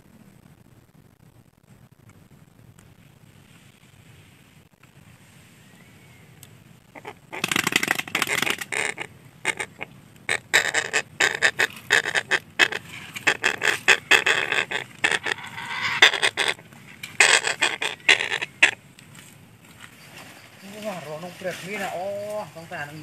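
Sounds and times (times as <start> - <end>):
parakeets squawking: 7.0 - 18.8.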